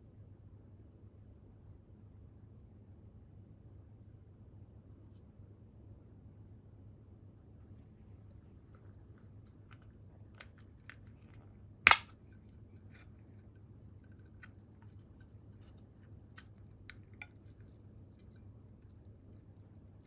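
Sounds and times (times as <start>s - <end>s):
can opening pop: 11.9s - 12.1s
fingers clicking on can tab: 11.9s - 12.1s.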